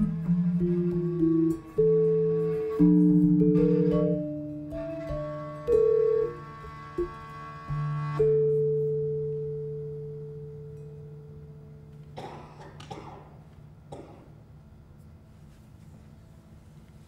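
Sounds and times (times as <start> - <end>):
metallophone notes ringing: 0.0 - 12.0.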